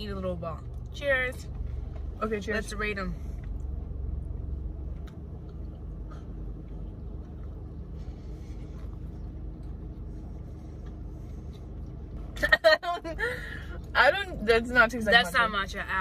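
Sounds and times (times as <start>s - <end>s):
car interior rumble: 0.0s - 16.0s
people chewing food: 3.4s - 12.4s.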